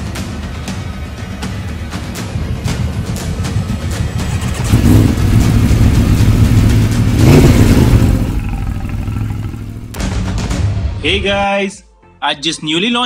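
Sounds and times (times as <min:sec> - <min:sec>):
vehicle engine revving: 0:04.2 - 0:10.0.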